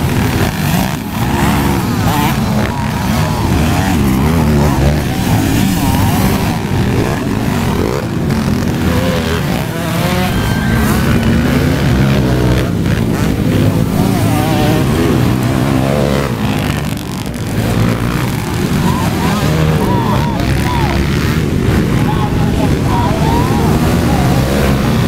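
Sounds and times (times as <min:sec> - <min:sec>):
dirt bike engines revving: 0:00.0 - 0:25.0
person speaking: 0:13.7 - 0:25.0.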